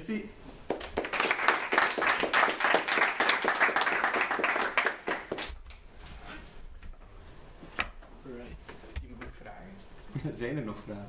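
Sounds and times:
audience clapping: 0.6 - 5.8.

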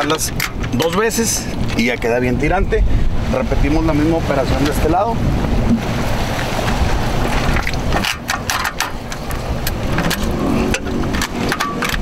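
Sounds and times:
steady low rumble: 0.0 - 11.3
tie-down strap clicks and scrapes: 7.5 - 12.0.

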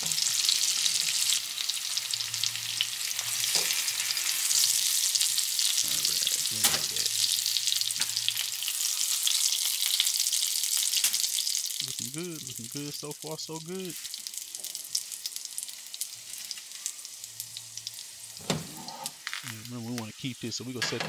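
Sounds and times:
fish sizzling in butter: 0.0 - 20.8.

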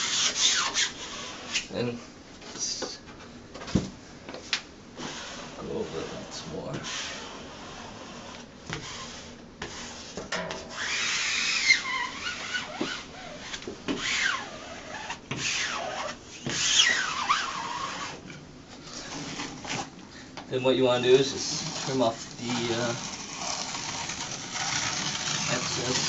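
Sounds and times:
squeegee rubbing on vinyl: 0.0 - 1.8, 5.0 - 18.2, 18.8 - 20.0, 20.7 - 26.0
squeegee squeak sliding in pitch: 10.7 - 18.2.

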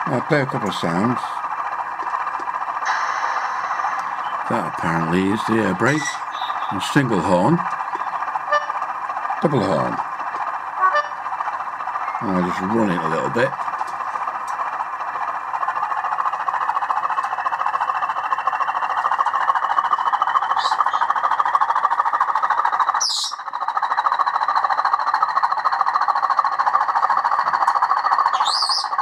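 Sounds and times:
faint whine rising in pitch: 0.0 - 8.8
diesel locomotive engine running: 0.0 - 29.0.

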